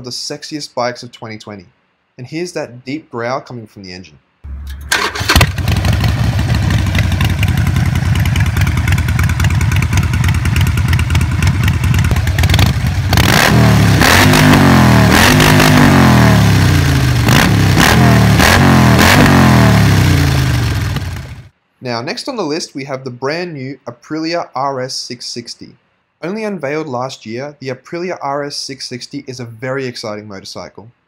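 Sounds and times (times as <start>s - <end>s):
motorcycle engine idling and revving: 4.5s - 21.5s.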